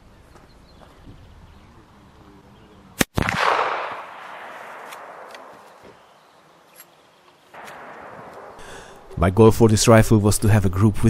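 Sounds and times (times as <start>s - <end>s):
rifle shot echoing: 3.0s - 5.8s, 7.6s - 9.1s.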